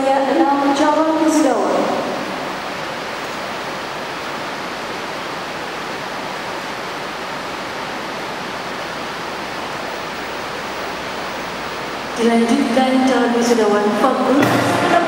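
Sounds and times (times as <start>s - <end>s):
steady hiss-like noise: 0.0s - 15.0s.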